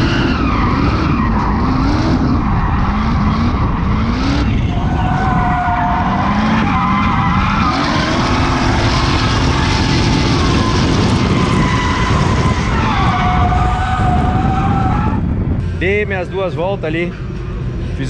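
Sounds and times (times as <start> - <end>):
car engine revving hard: 0.0 - 15.2.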